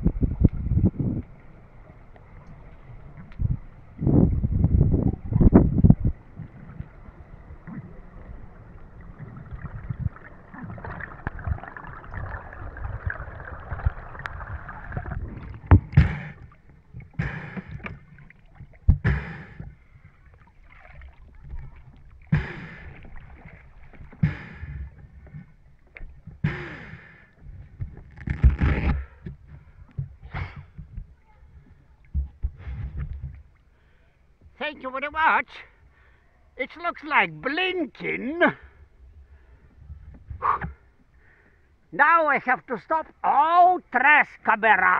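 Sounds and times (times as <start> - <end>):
muffled underwater water rush: 0.0 - 34.0
short loud gasping breaths: 22.3 - 23.1, 40.4 - 41.7.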